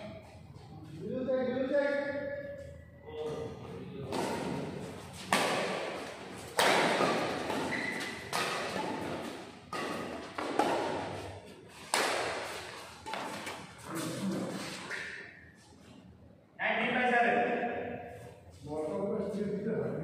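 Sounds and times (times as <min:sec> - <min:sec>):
rackets hitting shuttlecock: 0:04.1 - 0:15.4.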